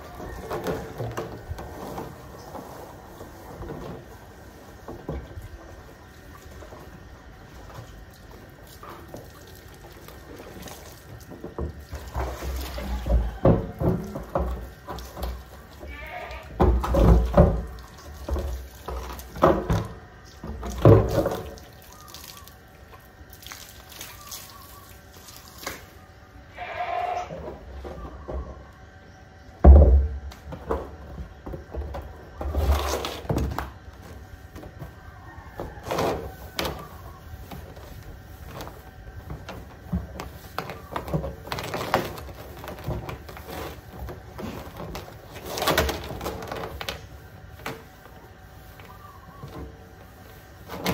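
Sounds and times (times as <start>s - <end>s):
water running and splashing: 20.6s - 25.8s.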